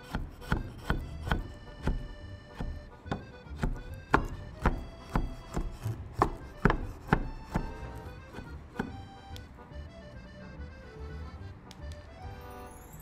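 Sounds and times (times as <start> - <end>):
knife chopping on wooden board: 0.0 - 9.4
background music: 0.0 - 13.0.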